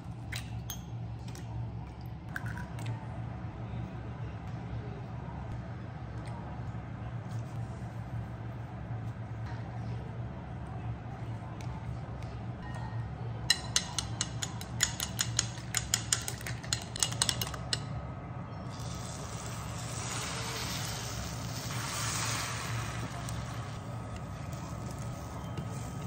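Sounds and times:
chopsticks beating eggs in glass bowl: 13.5 - 17.8
egg sizzling in hot pan: 18.8 - 23.8.

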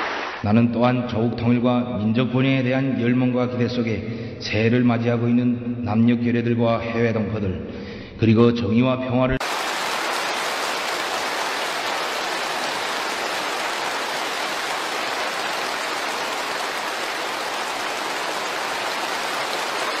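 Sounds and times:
large crowd applauding: 9.4 - 20.0.

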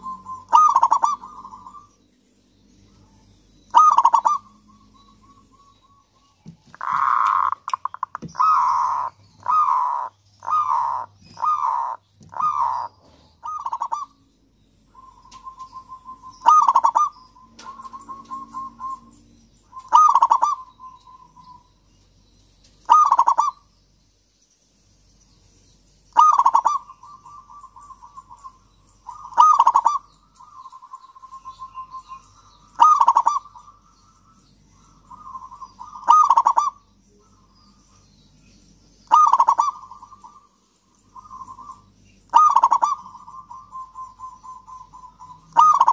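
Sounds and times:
dove cooing: 0.0 - 1.9, 3.7 - 6.0, 6.8 - 14.2, 14.9 - 19.1, 19.7 - 21.6, 22.8 - 23.6, 26.2 - 37.5, 39.0 - 40.5, 41.2 - 45.9.

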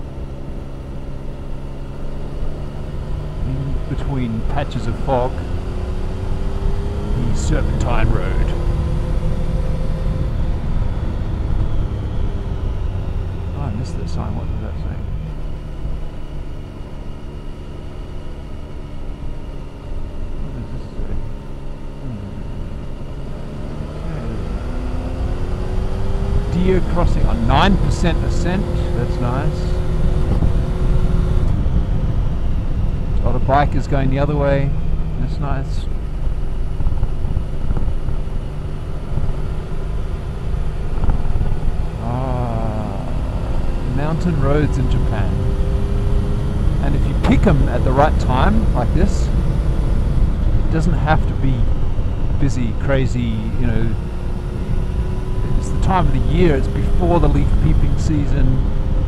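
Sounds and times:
motorcycle engine running under load: 0.0 - 59.0
wind and road noise: 0.0 - 59.0
wind rush on microphone: 29.8 - 33.2, 35.9 - 39.4, 40.1 - 42.0.

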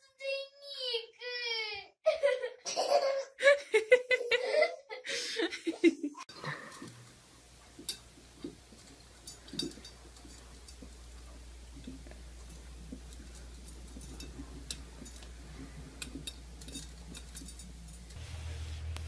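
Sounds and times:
child giggling and squealing: 2.1 - 3.4, 4.1 - 5.1
low hum: 7.1 - 19.0.

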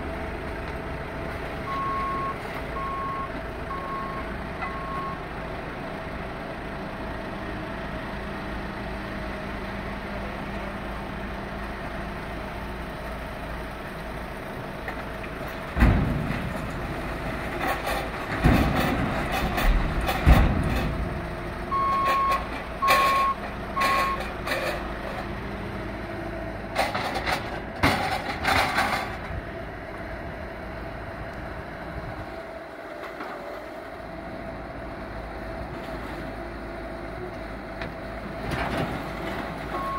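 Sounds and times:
diesel engine running: 0.0 - 39.9
debris crashing into dumpster: 15.7 - 21.2
backup alarm beeping: 21.7 - 24.2.

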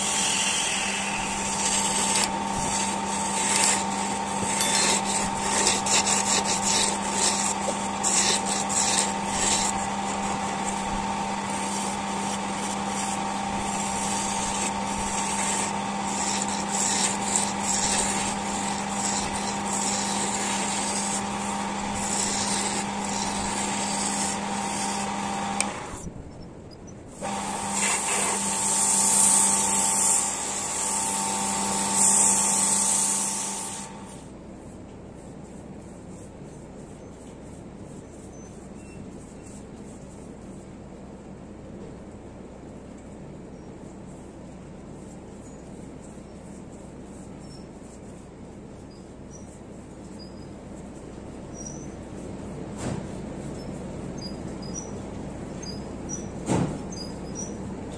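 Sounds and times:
sandpaper hissing on turning wood: 0.0 - 26.0, 27.1 - 40.9, 43.7 - 57.9
wood lathe motor hum: 0.0 - 26.0.

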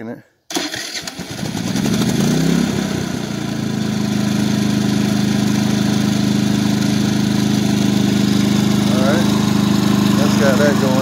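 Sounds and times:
generator starter cranking: 0.5 - 1.8
generator engine running: 0.6 - 11.0.

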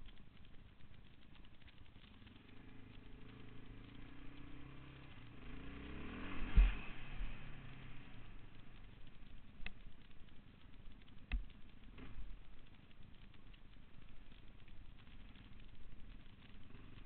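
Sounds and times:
quad engine revving: 2.8 - 8.2.

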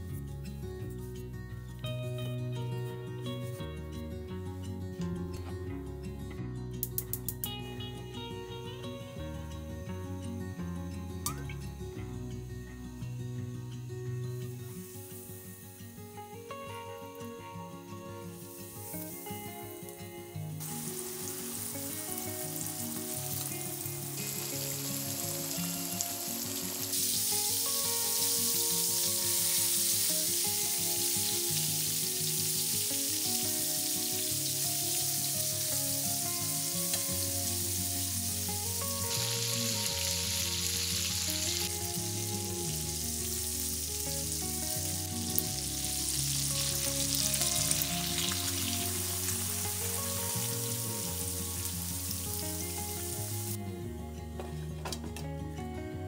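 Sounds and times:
soft background music: 0.0 - 56.0
chicken sizzling in oil: 14.6 - 16.2, 18.3 - 53.6.

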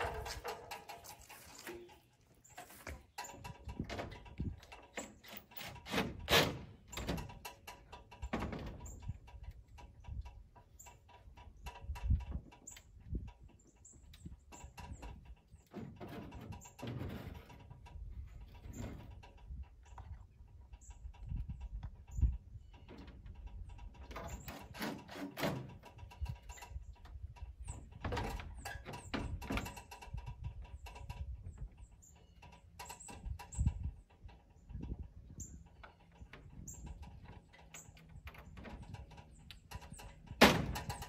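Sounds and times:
ladder knocks and clanks: 0.0 - 9.4, 14.5 - 19.4, 22.8 - 26.7, 27.4 - 31.2, 35.8 - 41.0.

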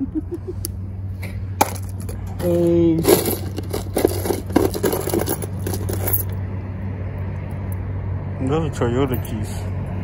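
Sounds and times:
steady low hum: 0.0 - 8.4
metal keys rattling and clinking: 1.6 - 6.4.

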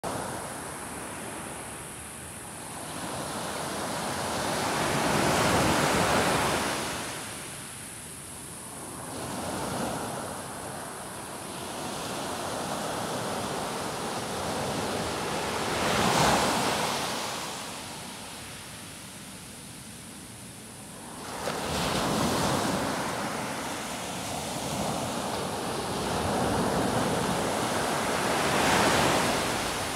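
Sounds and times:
small waves breaking on beach: 8.8 - 29.9.

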